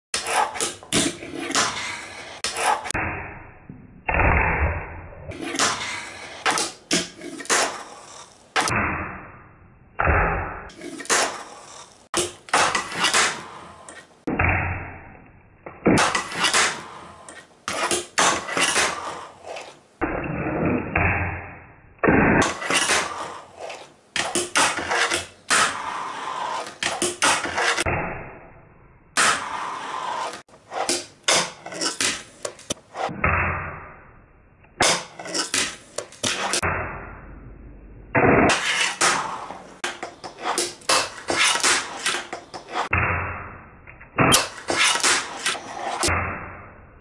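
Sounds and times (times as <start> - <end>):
fingerboard wheels rolling on wood: 5.3 - 8.7, 10.7 - 14.2, 16.0 - 20.8, 22.2 - 27.8, 29.2 - 33.1, 38.5 - 42.9, 44.4 - 46.1.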